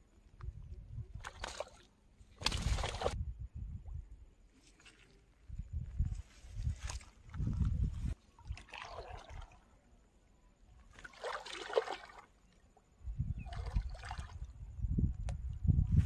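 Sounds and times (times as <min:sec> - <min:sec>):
water sloshing from wading: 0:06.7 - 0:09.8, 0:10.8 - 0:12.6.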